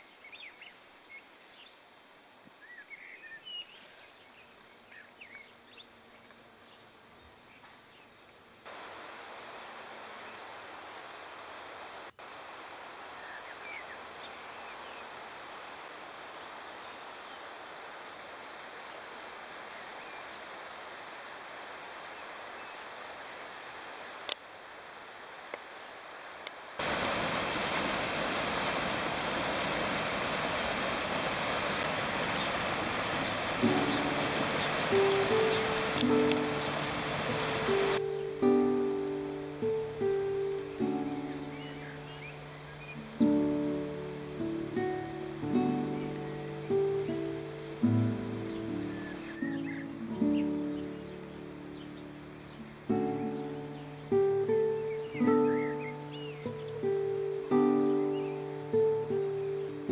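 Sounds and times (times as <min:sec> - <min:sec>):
outdoor hiss: 0:00.0 - 0:59.9
stream rushing over rocks: 0:08.6 - 0:59.9
plucked guitar music: 0:33.6 - 0:59.9.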